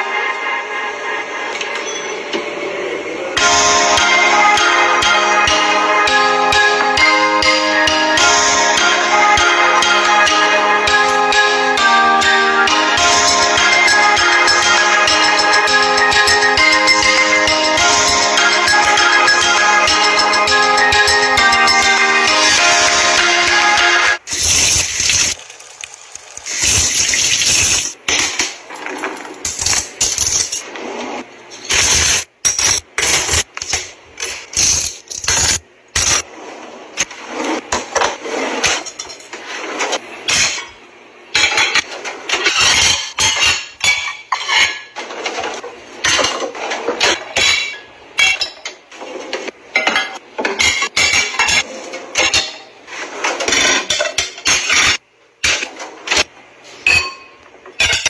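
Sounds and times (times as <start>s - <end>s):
running water from faucet: 24.3s - 27.9s
ceramic plates clinking: 41.4s - 45.0s, 46.0s - 48.8s.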